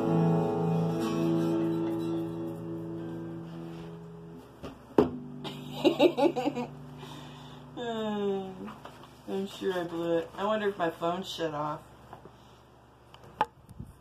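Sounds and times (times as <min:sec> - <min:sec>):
acoustic guitar chords ringing: 0:00.0 - 0:08.9.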